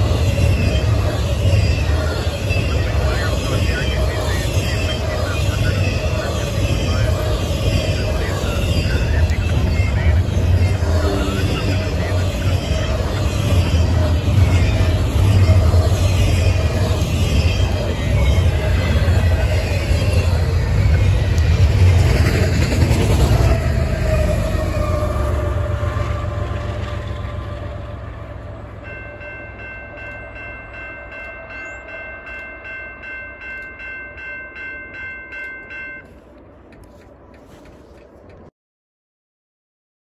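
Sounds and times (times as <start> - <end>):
train wheels rumbling on rail: 0.0 - 38.5
crossing bell ringing: 27.3 - 36.4.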